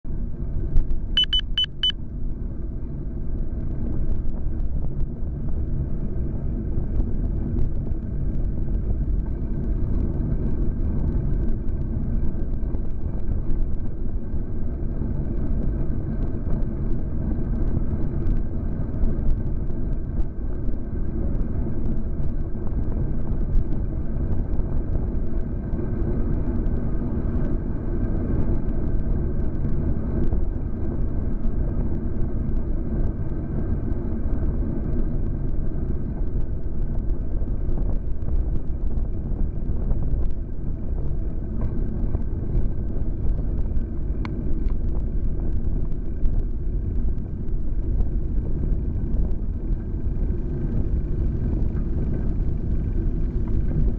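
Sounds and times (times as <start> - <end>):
wind and road rumble: 0.0 - 53.9
high electronic beep: 1.2 - 2.0.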